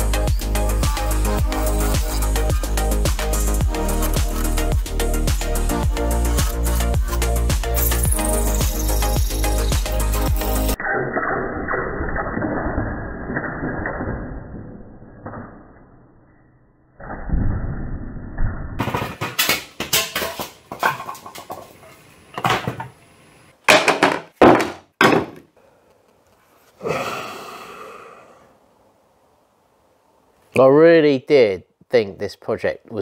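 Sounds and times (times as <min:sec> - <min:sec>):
sharp cracks and knocks: 0:18.8 - 0:21.7, 0:23.7 - 0:25.5.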